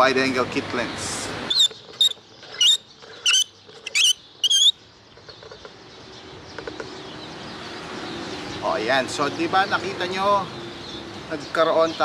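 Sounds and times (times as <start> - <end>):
high wavering plastic squeaks: 1.5 - 4.7.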